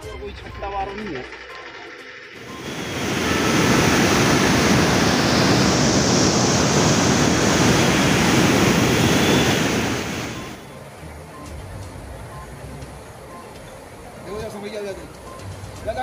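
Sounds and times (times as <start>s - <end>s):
water rushing through spillway: 2.4s - 10.6s.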